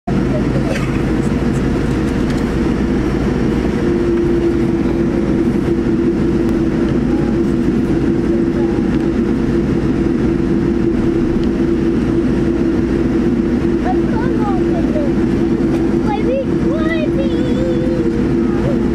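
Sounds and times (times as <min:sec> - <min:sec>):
jet engines rumbling in cabin: 0:00.0 - 0:18.9
steady engine tone: 0:00.0 - 0:18.9.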